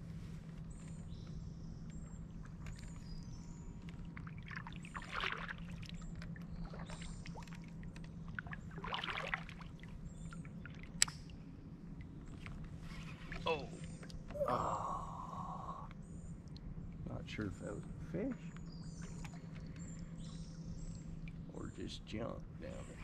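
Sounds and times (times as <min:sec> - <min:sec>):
birds chirping: 0:00.0 - 0:23.0
low steady hum: 0:00.0 - 0:23.0
water sloshing against kayak hull: 0:02.4 - 0:11.0.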